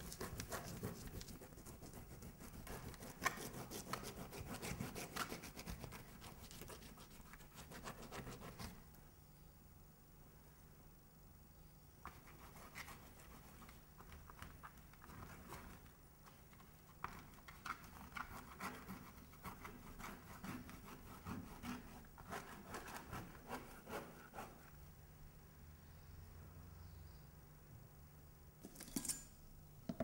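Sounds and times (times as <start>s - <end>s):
paintbrush scrubbing on canvas: 0.0s - 8.8s, 17.4s - 24.7s.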